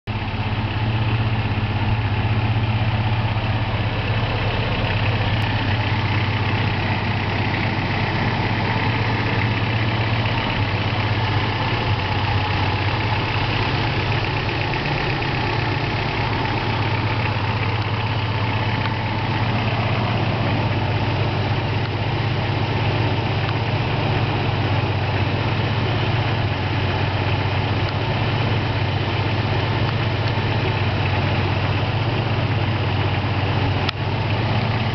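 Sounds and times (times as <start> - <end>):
car engine idling: 0.0 - 34.9.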